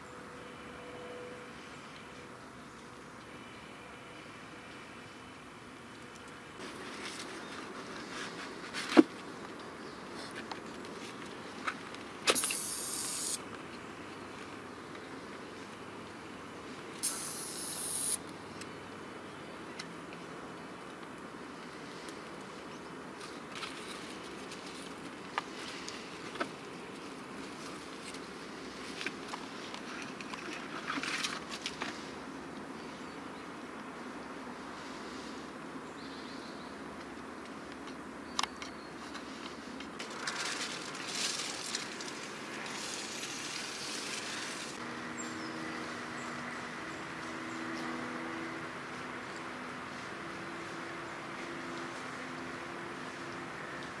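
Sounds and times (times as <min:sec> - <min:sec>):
outdoor background hiss: 0:00.0 - 0:54.0
crackling rustles: 0:06.2 - 0:13.4, 0:23.2 - 0:32.1, 0:39.0 - 0:44.8
sharp click: 0:12.3 - 0:13.4
distant traffic drone: 0:38.6 - 0:54.0.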